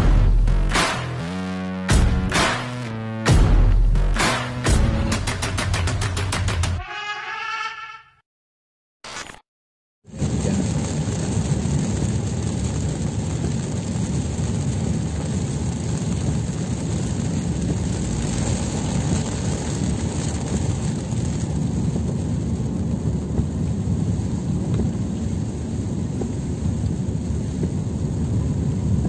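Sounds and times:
road and engine rumble: 0.0s - 4.9s, 10.1s - 29.0s
rain hitting windscreen: 10.1s - 29.0s.

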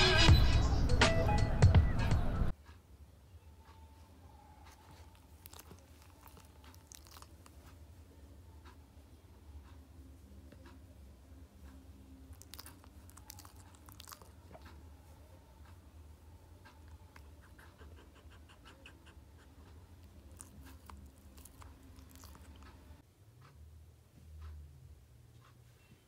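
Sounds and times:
small dog sniffing: 17.1s - 23.0s.

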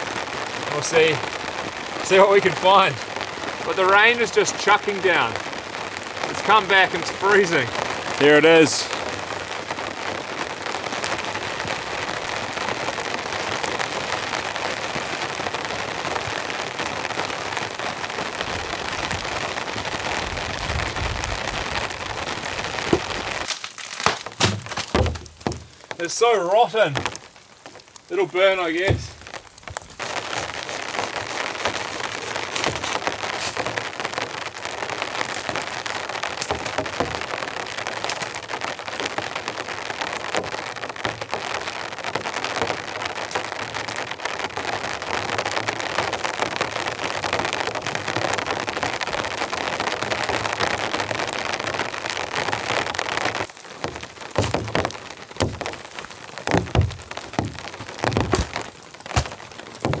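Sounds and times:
heavy rain falling: 0.0s - 60.0s
dead wood knocking: 22.9s - 23.2s, 24.0s - 26.0s, 28.8s - 29.8s, 53.8s - 60.0s.

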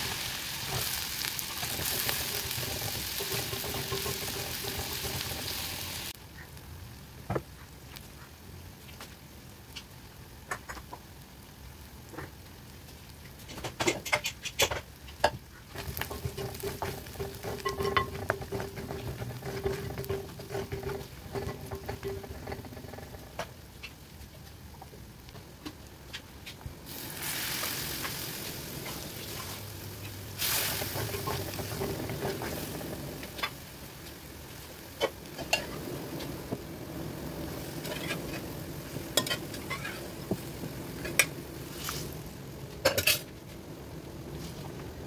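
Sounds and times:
onions sizzling in oil: 0.0s - 45.0s
spoon scraping clay pot: 1.6s - 5.6s, 15.7s - 23.3s.

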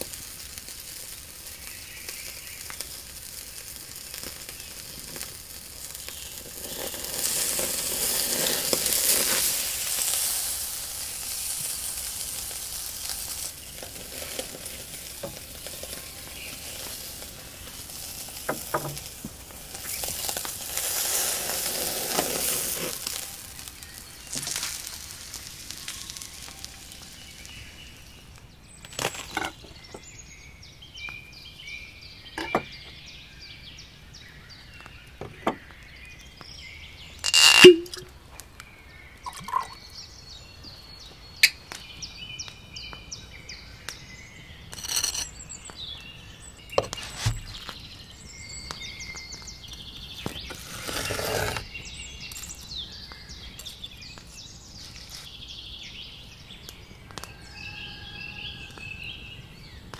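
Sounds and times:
steak sizzling on grill: 0.0s - 29.0s, 44.2s - 55.5s.

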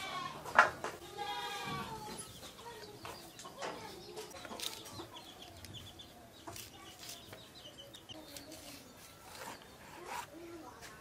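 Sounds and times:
birds calling: 0.0s - 10.9s.

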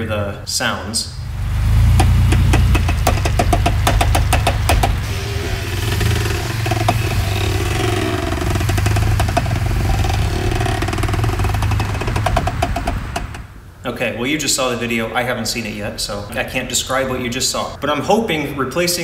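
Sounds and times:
engine running low: 0.0s - 13.6s
clicking knocks from rear axle: 1.9s - 13.5s.

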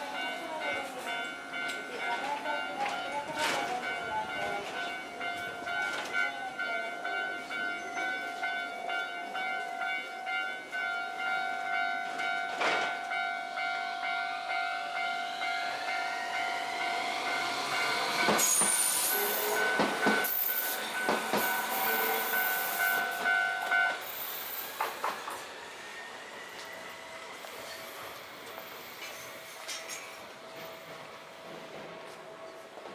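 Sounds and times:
tram motor whine: 4.9s - 32.9s
high wheel squeal: 17.5s - 23.2s
wheels knocking on rail: 19.6s - 20.4s.

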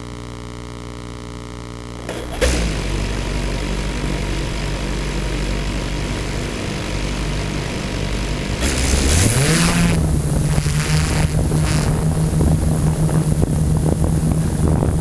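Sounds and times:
drone propellers humming: 3.0s - 15.0s.

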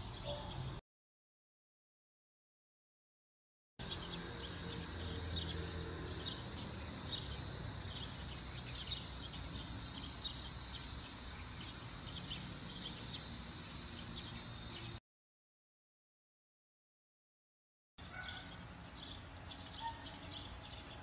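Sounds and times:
low hum and hiss: 3.8s - 15.0s.

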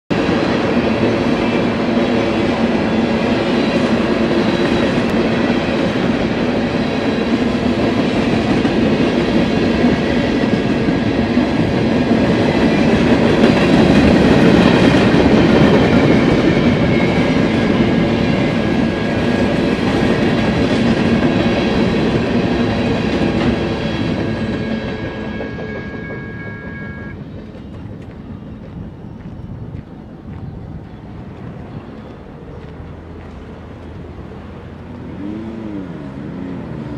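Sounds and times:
train wheels rumbling on rails: 0.1s - 36.9s
high ringing tone: 23.8s - 27.3s.

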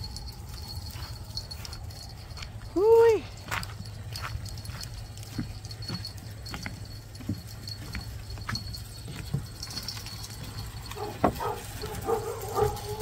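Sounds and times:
footsteps on wooden boards: 3.4s - 13.0s.

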